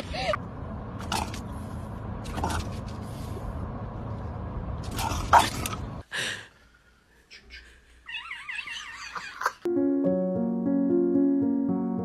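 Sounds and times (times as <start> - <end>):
car cabin road noise: 0.0 - 6.0.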